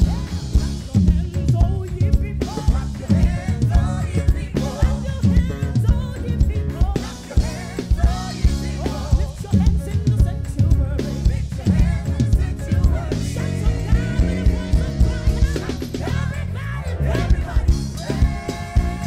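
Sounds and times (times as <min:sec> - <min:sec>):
drum kit: 0:00.0 - 0:19.0
electric bass groove: 0:00.0 - 0:19.0
person singing: 0:00.0 - 0:19.0.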